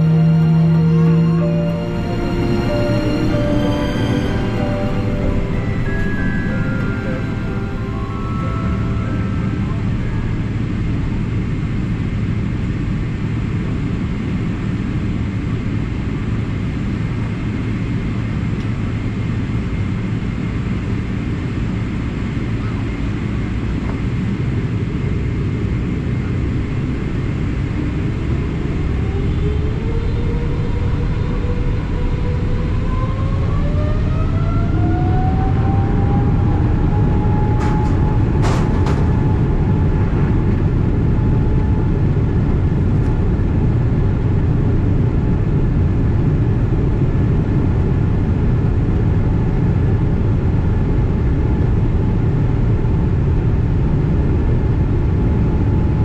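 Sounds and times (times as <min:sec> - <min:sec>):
jet engines spooling up: 0:00.0 - 0:56.0.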